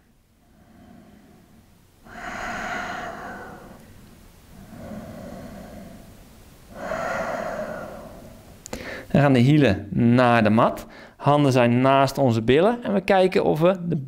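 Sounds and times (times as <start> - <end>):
man breathing deeply: 0.0 - 9.1, 10.9 - 11.2.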